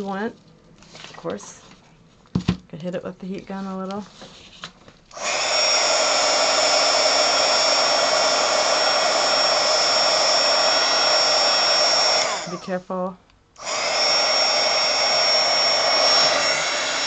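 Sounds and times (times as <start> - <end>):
heat gun motor whine: 5.1 - 12.8, 13.6 - 17.0.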